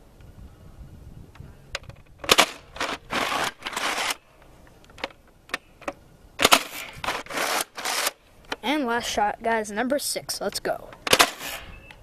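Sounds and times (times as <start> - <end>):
toy blaster firing: 11.1 - 11.6.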